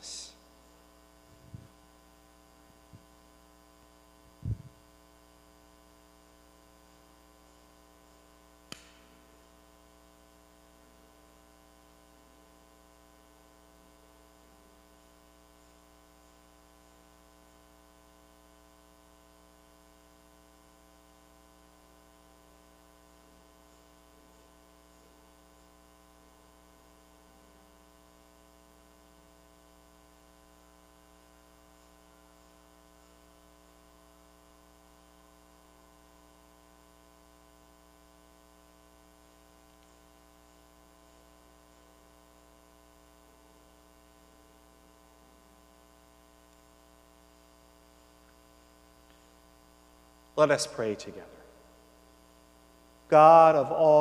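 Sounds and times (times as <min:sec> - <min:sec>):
electrical mains hum: 0:00.0 - 0:54.0
short sharp click: 0:08.7 - 0:09.1.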